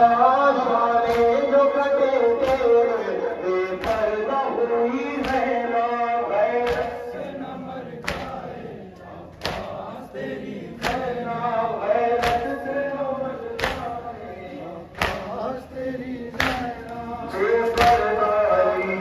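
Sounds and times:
men chanting in unison: 0:00.0 - 0:19.0
hands slapping chests: 0:01.0 - 0:01.4, 0:02.4 - 0:02.7, 0:03.7 - 0:04.1, 0:05.2 - 0:05.6, 0:06.6 - 0:07.2, 0:08.0 - 0:08.6, 0:09.3 - 0:09.8, 0:10.8 - 0:11.2, 0:12.2 - 0:12.6, 0:13.5 - 0:14.0, 0:14.9 - 0:15.4, 0:16.3 - 0:18.1.

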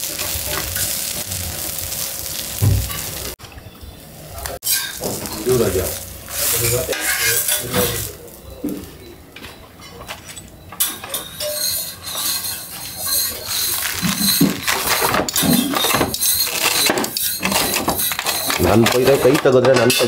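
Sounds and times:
metal spatula scraping on griddle: 0:04.6 - 0:08.2, 0:10.9 - 0:20.0.

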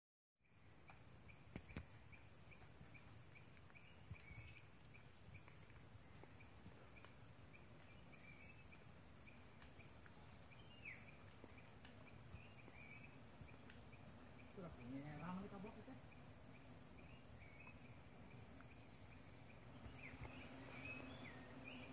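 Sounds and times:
insect trill: 0:00.5 - 0:21.9
short insect chirps: 0:00.5 - 0:21.9
insect high-pitched shrill: 0:12.0 - 0:21.9.

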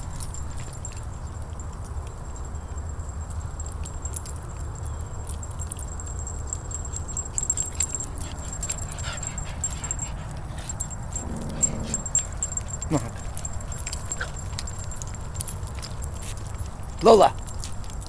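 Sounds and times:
clicks and jingles: 0:00.0 - 0:18.0
dog whining: 0:07.8 - 0:15.0
low rumble: 0:08.5 - 0:12.8.

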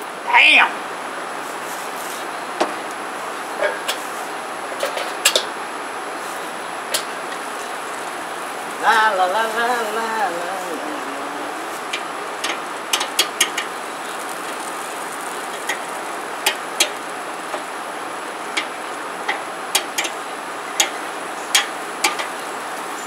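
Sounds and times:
meat sizzling: 0:01.4 - 0:23.0
metal tongs clicking on grill grate: 0:04.8 - 0:05.5, 0:11.9 - 0:13.7, 0:16.4 - 0:17.6, 0:19.3 - 0:20.2, 0:20.8 - 0:22.3.

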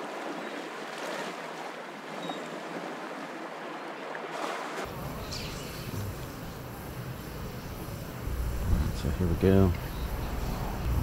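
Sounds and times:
wind: 0:00.0 - 0:11.0
surf hissing: 0:04.8 - 0:11.0
low rumble: 0:04.9 - 0:11.0.

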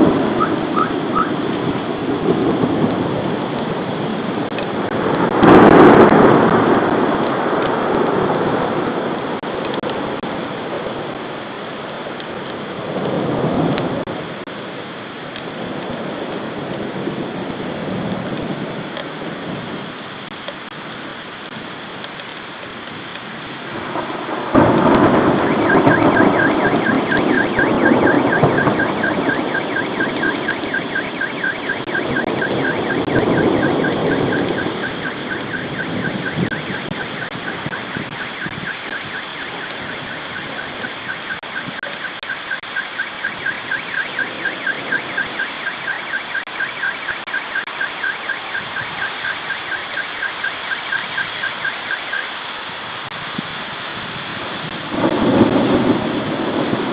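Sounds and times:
rain hissing: 0:00.0 - 0:56.9
thunderclap rumbling: 0:00.0 - 0:56.9
car alarm beeping: 0:00.4 - 0:01.4, 0:25.1 - 0:52.3.

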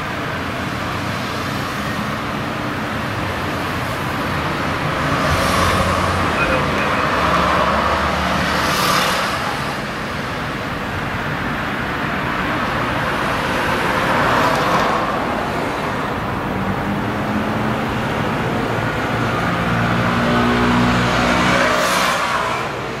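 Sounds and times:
road traffic rumble: 0:00.0 - 0:23.0
vehicle passing close by: 0:04.7 - 0:09.8.

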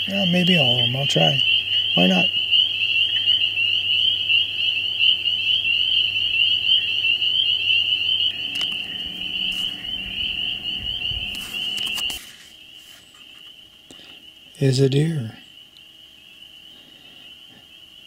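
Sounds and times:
frog high-pitched trill: 0:00.0 - 0:12.3.

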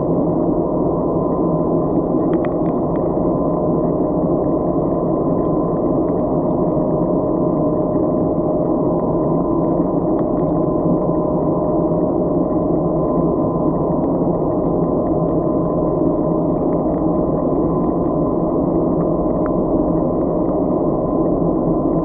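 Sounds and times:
faint constant hum: 0:00.0 - 0:22.0
muffled underwater rumble: 0:00.0 - 0:22.0
faint ticks: 0:02.2 - 0:03.1, 0:08.2 - 0:10.7, 0:18.8 - 0:20.7.

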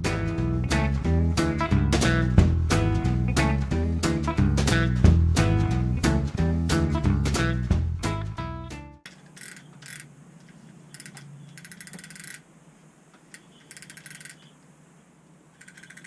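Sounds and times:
guitar music: 0:00.0 - 0:09.0
fishing reel ratcheting: 0:09.2 - 0:10.1, 0:10.9 - 0:12.4, 0:13.3 - 0:14.5, 0:15.6 - 0:16.0.

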